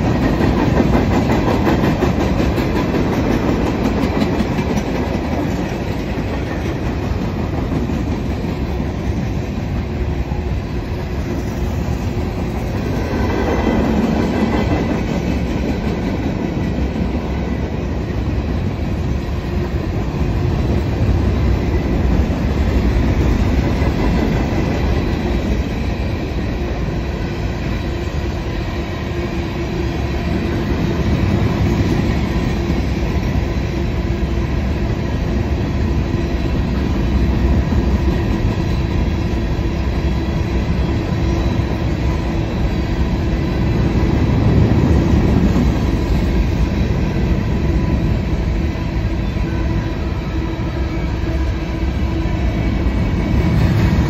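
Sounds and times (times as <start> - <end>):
clacking over rail joints: 0.0 - 9.1
steel wheels rumbling on rail: 0.0 - 54.0.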